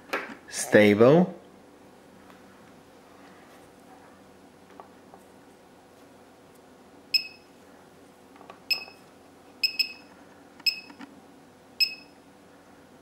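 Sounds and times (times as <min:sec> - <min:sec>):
short high beeps: 0:07.2 - 0:07.5, 0:08.7 - 0:09.0, 0:09.6 - 0:10.1, 0:10.7 - 0:10.9, 0:11.8 - 0:12.2.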